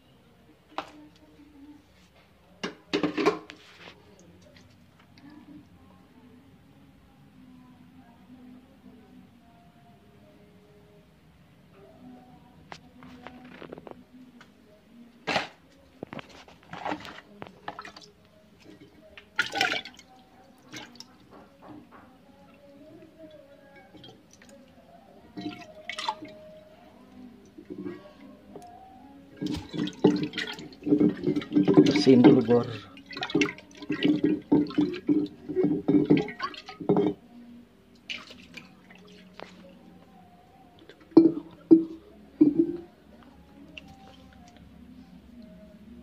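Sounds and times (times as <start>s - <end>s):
water splashing in a glass jar: 16.1s - 21.6s, 23.4s - 26.7s, 29.3s - 37.2s, 38.0s - 39.7s, 41.0s - 42.9s.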